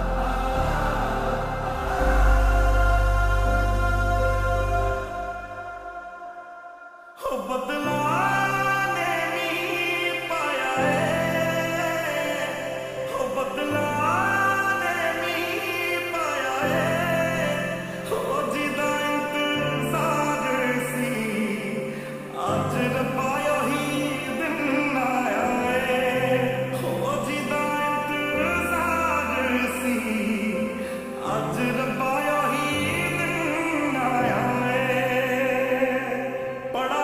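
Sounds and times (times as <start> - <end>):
deep sustained bass notes: 0.0 - 6.0
film ballad singing: 0.0 - 37.0.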